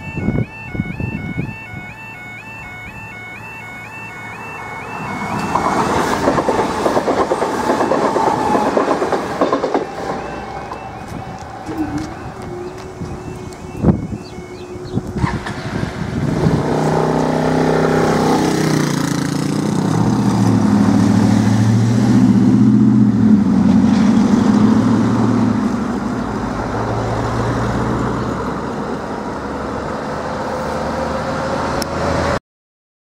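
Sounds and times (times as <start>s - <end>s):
level crossing alarm tone: 0.0s - 15.4s
vehicles accelerating past: 3.6s - 32.4s.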